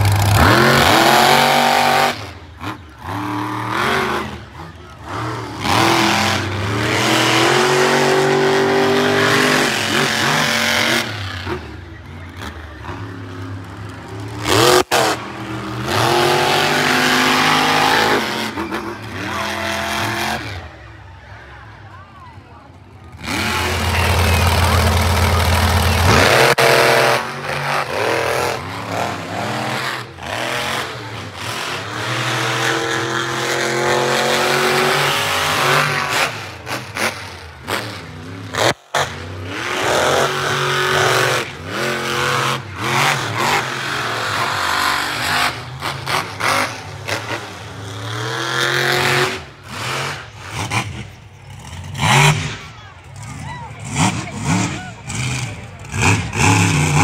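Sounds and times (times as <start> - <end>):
monster truck engines revving: 0.0 - 57.0.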